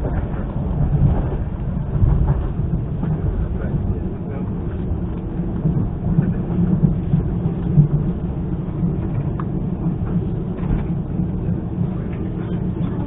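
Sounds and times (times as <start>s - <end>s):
train wheels rumbling: 0.0s - 13.0s.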